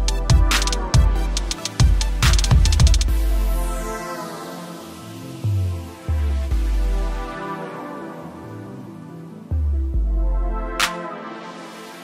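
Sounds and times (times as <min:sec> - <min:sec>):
deep bass line: 0:00.0 - 0:03.9, 0:09.5 - 0:10.8
electronic music with drum beat: 0:00.0 - 0:12.0.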